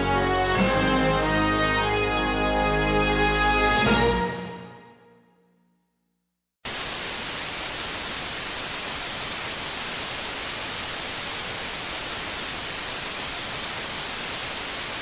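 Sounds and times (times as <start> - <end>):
television static hiss: 6.7 - 15.0.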